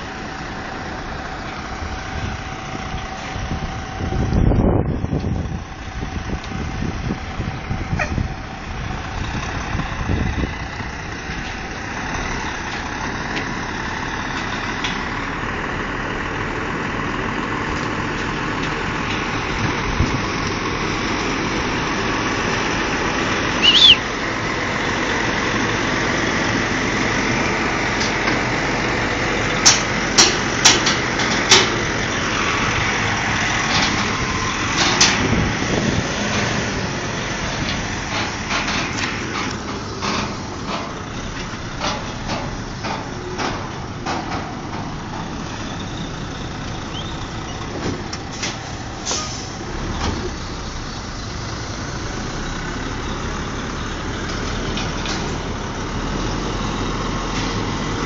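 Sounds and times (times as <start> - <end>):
diesel truck engine running: 0.0 - 58.0
high squeak: 23.6 - 24.0.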